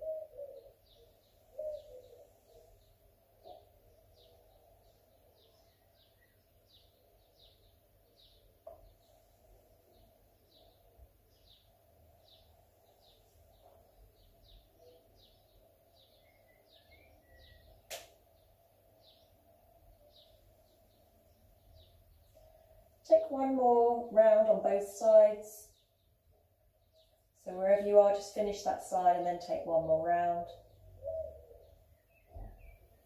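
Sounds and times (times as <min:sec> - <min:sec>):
small bird chirping: 0:00.0 - 0:23.0, 0:30.4 - 0:33.0.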